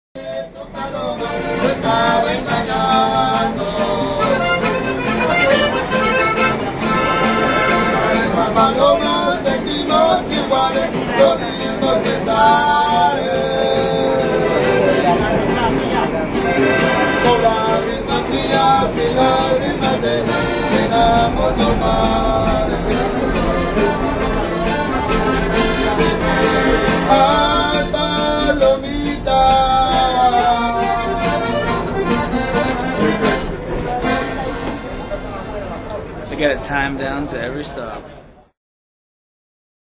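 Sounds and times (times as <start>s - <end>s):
man singing: 0.2s - 5.6s, 7.6s - 33.4s
accordion playing a tune: 0.2s - 36.3s
strummed guitar: 0.2s - 38.1s
alternating two-note bass: 12.6s - 36.1s.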